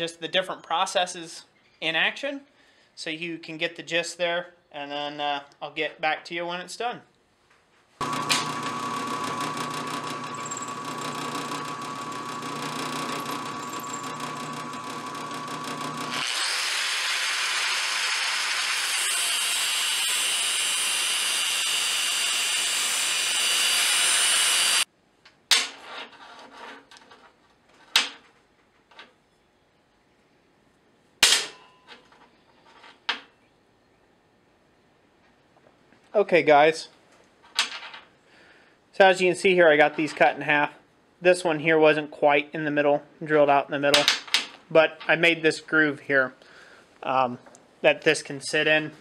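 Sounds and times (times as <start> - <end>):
drill press drilling steel: 8.0 - 24.8
angle grinder cutting steel: 8.0 - 24.9
steel pieces clinking: 13.2 - 14.2.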